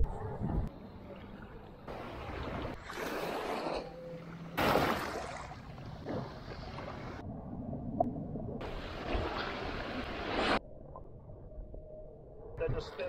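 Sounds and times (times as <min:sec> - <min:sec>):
seawater sloshing and waves washing: 0:00.6 - 0:07.2, 0:08.6 - 0:10.6.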